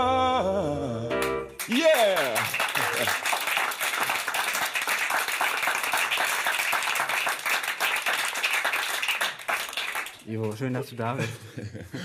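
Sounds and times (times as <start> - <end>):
audience applauding: 1.6 - 10.8.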